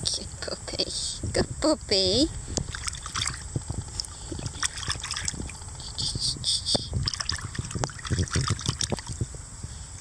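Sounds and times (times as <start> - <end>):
high chirping: 5.6 - 7.0
water splashing in plastic tub: 7.0 - 9.2.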